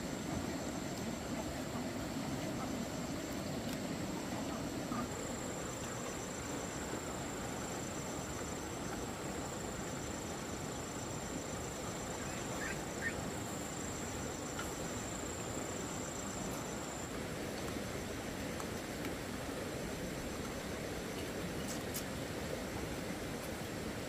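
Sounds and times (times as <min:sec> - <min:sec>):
insect pulsed trills: 0:00.0 - 0:17.2
insects buzzing: 0:00.0 - 0:18.3
background hiss: 0:00.0 - 0:24.0.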